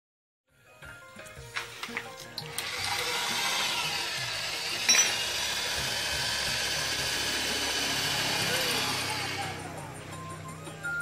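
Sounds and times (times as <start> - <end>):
electric drill boring into metal: 1.6 - 9.7.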